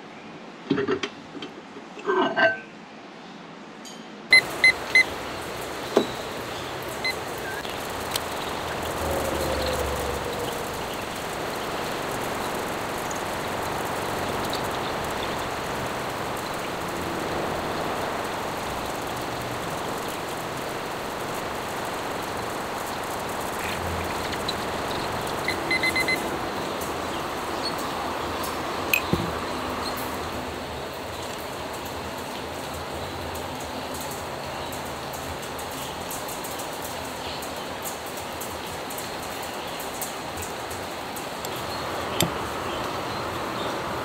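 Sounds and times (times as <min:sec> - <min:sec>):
outdoor background noise: 0:00.0 - 0:44.0
kitchen timer beeps: 0:04.3 - 0:05.1, 0:25.4 - 0:26.2.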